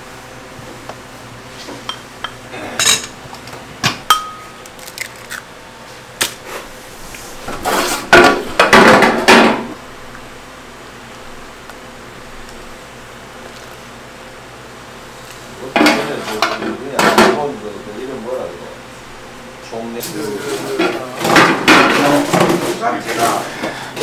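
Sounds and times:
utensils clinking against pots: 1.9s - 3.2s, 4.1s - 4.5s.

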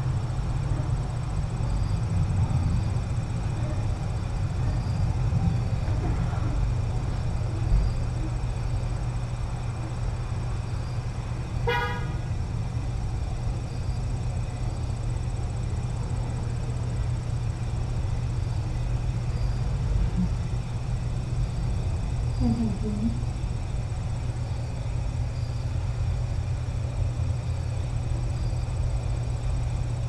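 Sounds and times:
short horn toot: 11.7s - 12.2s.

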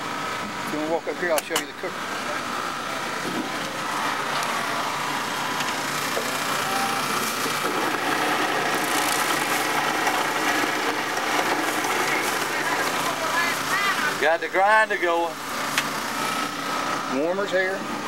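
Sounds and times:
motor running: 0.0s - 18.0s.

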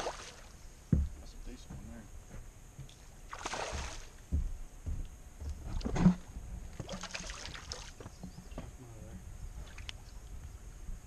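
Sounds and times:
fish splashing in water: 0.0s - 0.5s, 3.3s - 4.1s, 6.8s - 8.0s.

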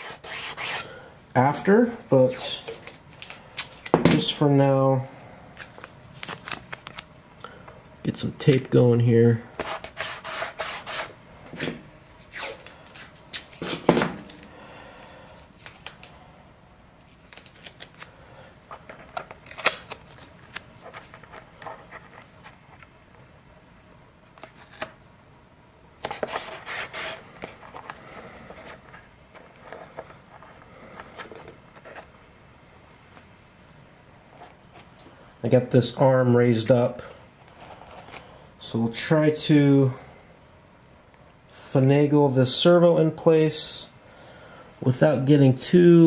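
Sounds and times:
masking tape ripping and crackling: 17.2s - 18.1s, 19.1s - 22.5s, 24.4s - 25.0s.

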